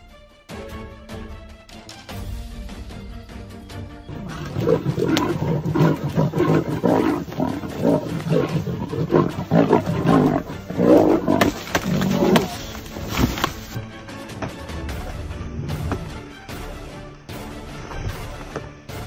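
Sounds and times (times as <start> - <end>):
background music: 0.0 - 19.0
lions growling: 4.1 - 13.8.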